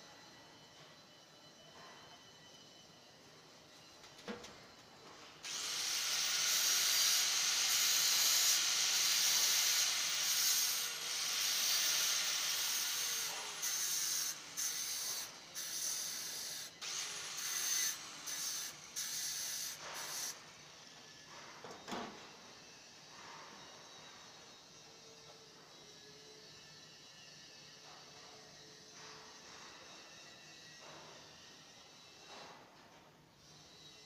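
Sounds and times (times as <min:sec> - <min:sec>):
angle grinder grinding metal: 0:05.4 - 0:20.4.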